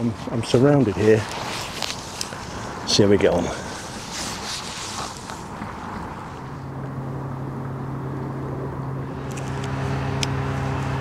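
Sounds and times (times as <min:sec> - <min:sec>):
low droning hum: 0:00.0 - 0:11.0.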